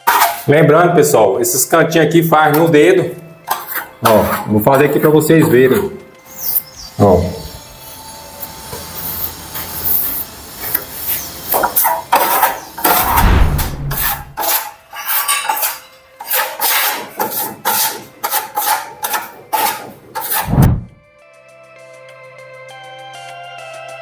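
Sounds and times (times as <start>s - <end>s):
steel trowel scraping cement: 0.0s - 0.6s, 3.5s - 6.6s, 11.0s - 13.2s, 13.9s - 20.6s
low rumbling noise: 13.0s - 14.4s, 20.5s - 21.0s.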